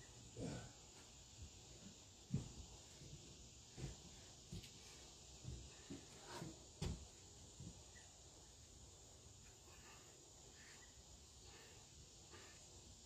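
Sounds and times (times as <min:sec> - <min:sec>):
faint outdoor hiss: 0:00.0 - 0:13.0.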